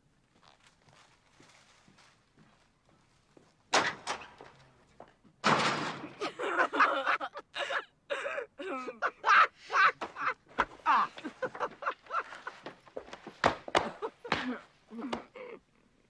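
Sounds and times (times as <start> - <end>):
door slamming shut: 3.7 - 4.6, 5.4 - 6.2
man crying out loudly: 7.6 - 11.4.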